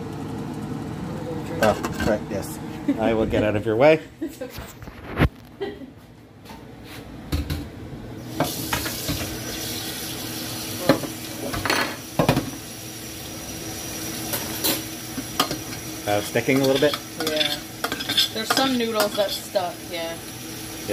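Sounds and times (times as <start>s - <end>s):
metal spoon clanking against pot: 16.5s - 19.4s.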